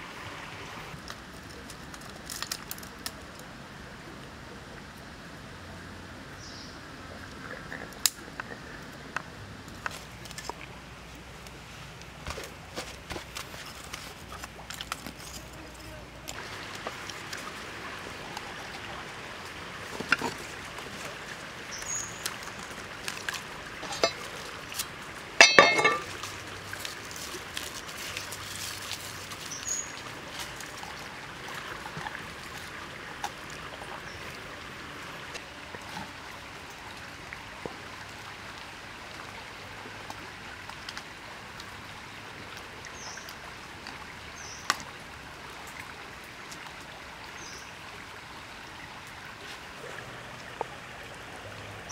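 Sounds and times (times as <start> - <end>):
stream trickling: 0.0 - 51.9.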